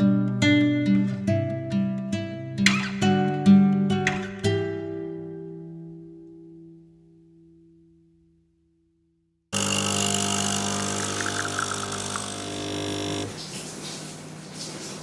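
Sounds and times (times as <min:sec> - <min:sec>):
acoustic guitar music: 0:00.0 - 0:07.0
coffee pouring into cup: 0:09.6 - 0:13.7
coffee machine pump buzzing: 0:09.6 - 0:13.8.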